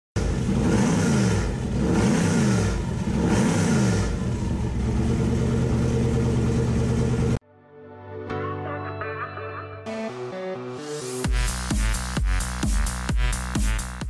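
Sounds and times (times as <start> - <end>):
car engine revving and idling: 0.2 - 7.4.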